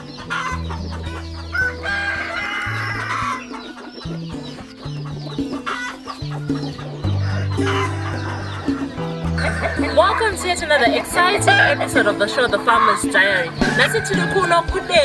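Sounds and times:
background music with bass notes: 0:00.0 - 0:15.0
chickens clucking: 0:00.0 - 0:15.0
rooster crowing: 0:01.5 - 0:03.8.

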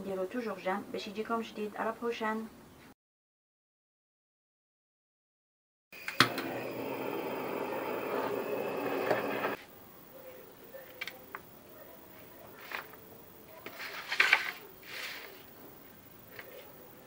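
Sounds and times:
blowtorch flame hissing: 0:06.0 - 0:09.6.

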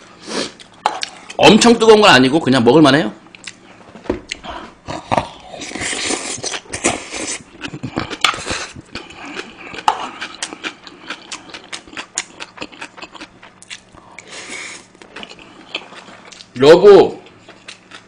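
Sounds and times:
wet chewing smacks: 0:05.8 - 0:14.0.

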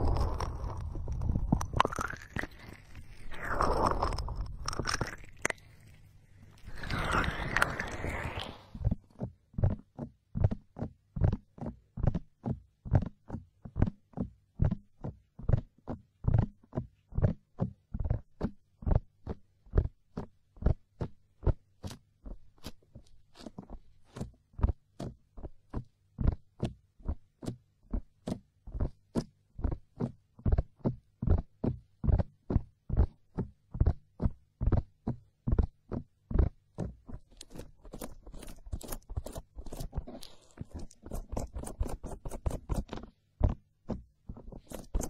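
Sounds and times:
hands patting microphone: 0:30.0 - 0:45.0.

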